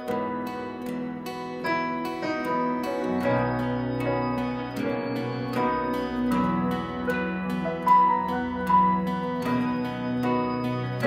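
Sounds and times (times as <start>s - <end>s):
digital piano playing slowly: 0.0s - 11.0s.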